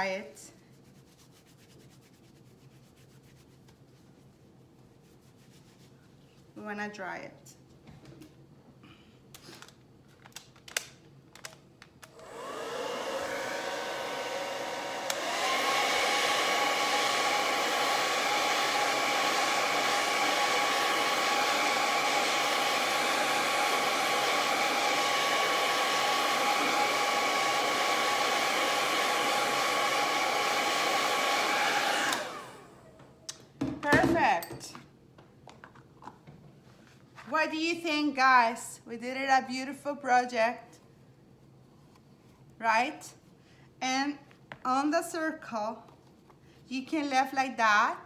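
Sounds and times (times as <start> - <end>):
hot-air dryer whirring: 12.0 - 34.2.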